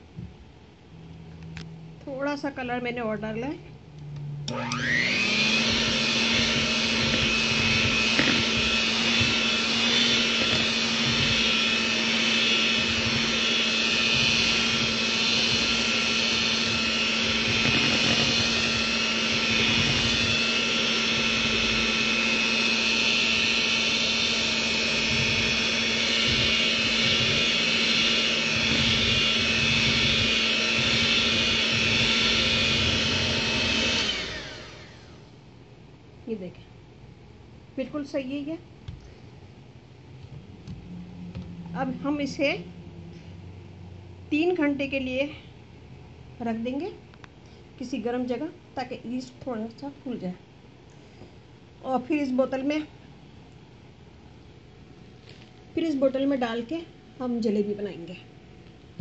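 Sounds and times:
electric hand mixer whirring: 0:04.4 - 0:35.4.

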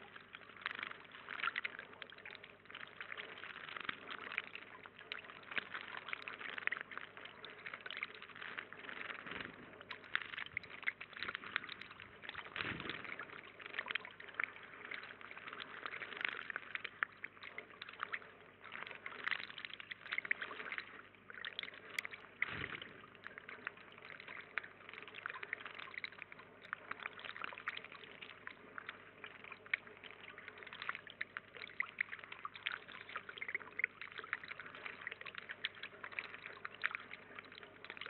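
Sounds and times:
water trickling into pond: 0:00.0 - 0:38.0
low thump: 0:22.4 - 0:22.9.

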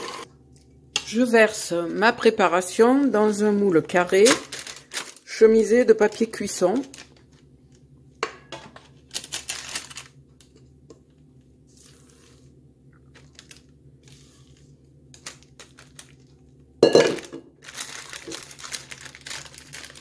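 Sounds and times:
paper crinkling: 0:03.3 - 0:07.8, 0:09.0 - 0:10.6, 0:11.7 - 0:16.6, 0:17.6 - 0:20.0.

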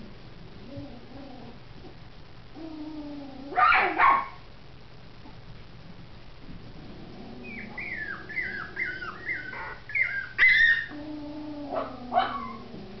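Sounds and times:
puppies whimpering: 0:07.4 - 0:11.0
puppy yelping and yipping: 0:07.5 - 0:10.9.

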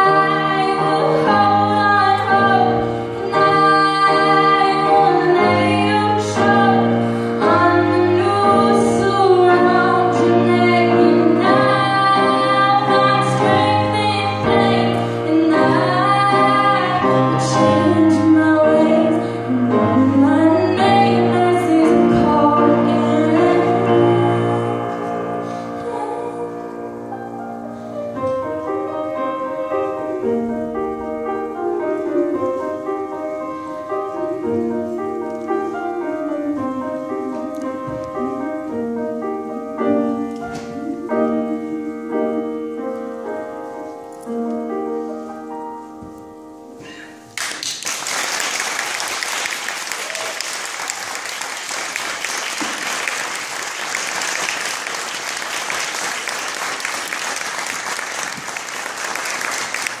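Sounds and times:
grand piano chords: 0:00.0 - 0:49.7
audience applause: 0:47.4 - 1:00.0.

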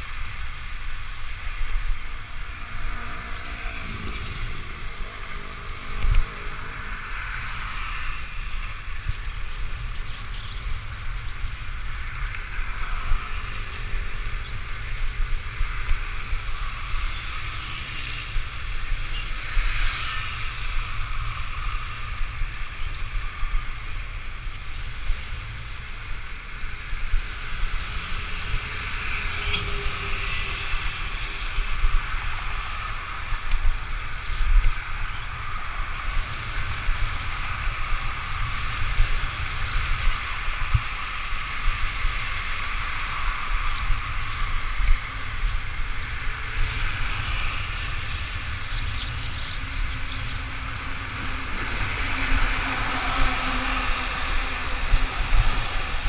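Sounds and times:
road noise: 0:00.0 - 0:56.0
wind rush on microphone: 0:00.0 - 0:56.0.

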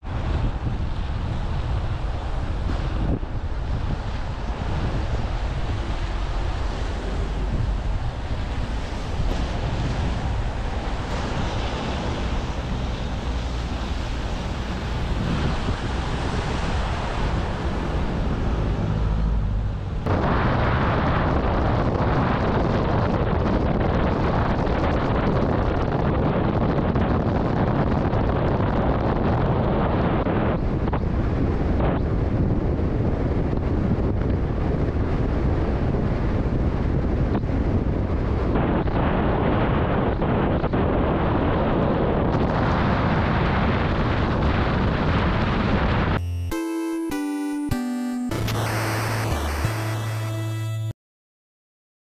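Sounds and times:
motorcycle engine and road rumble: 0:00.0 - 0:25.8
wind rushing over microphone: 0:00.0 - 0:46.2.

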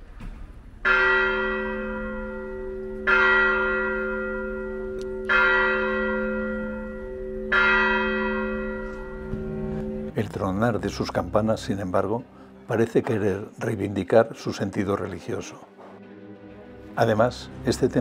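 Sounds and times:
church bell tolling: 0:00.8 - 0:11.4.

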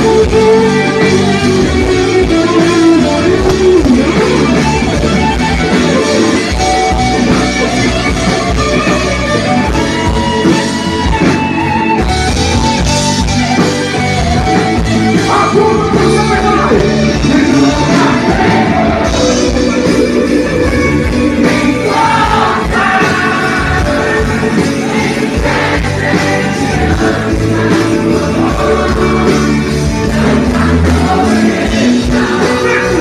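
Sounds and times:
drums: 0:00.0 - 0:33.0
electric guitar: 0:00.0 - 0:33.0
gospel band playing: 0:00.0 - 0:33.0
man singing: 0:15.2 - 0:20.2, 0:21.3 - 0:33.0.

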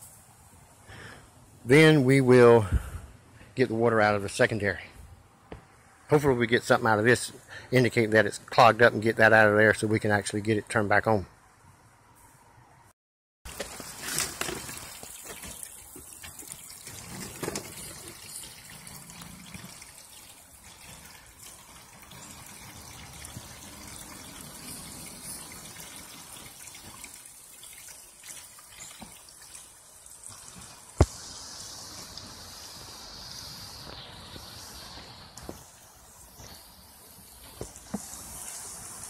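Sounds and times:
water splashing from drain pipe: 0:13.5 - 0:32.4, 0:37.6 - 0:39.0.

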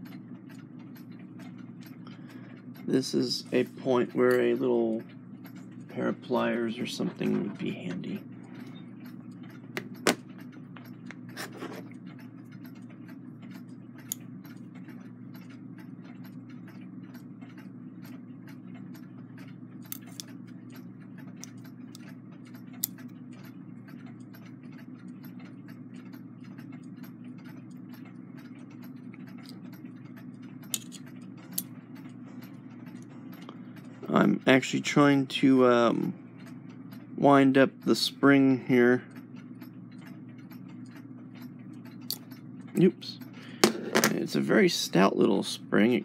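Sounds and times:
steady low hum: 0:00.0 - 0:46.0
light metallic clicks and taps: 0:30.6 - 0:33.5.

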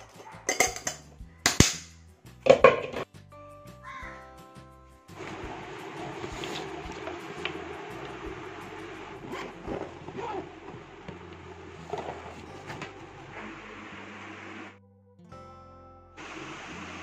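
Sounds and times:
zip being pulled: 0:08.8 - 0:10.8.

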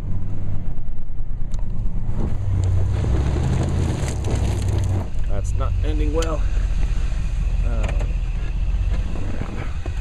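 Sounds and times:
truck engine running hard: 0:01.7 - 0:10.0
tyre spinning in snow: 0:02.8 - 0:05.1.

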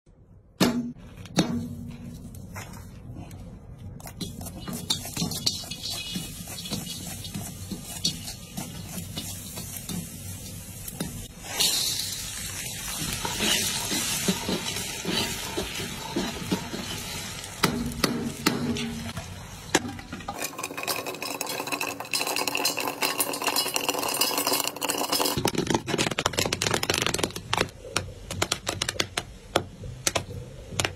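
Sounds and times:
corn kernels popping: 0:04.1 - 0:10.1, 0:19.8 - 0:30.9
food sizzling in a wok: 0:04.3 - 0:25.4.

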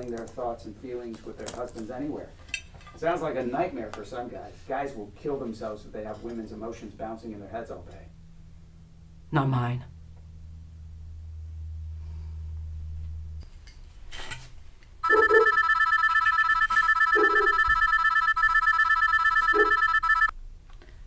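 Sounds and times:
faint low hum: 0:00.0 - 0:21.0
telephone ringing: 0:15.0 - 0:20.3.

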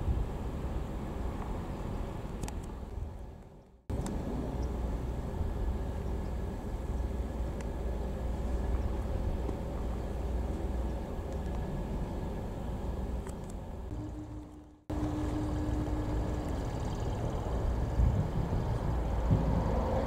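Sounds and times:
faint steady whine: 0:03.9 - 0:19.1
diesel engine idling: 0:03.9 - 0:19.4.

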